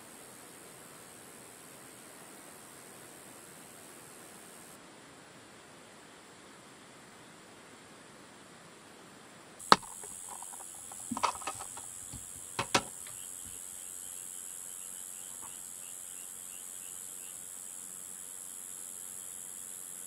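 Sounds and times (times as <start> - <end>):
insect chirring: 9.6 - 20.0.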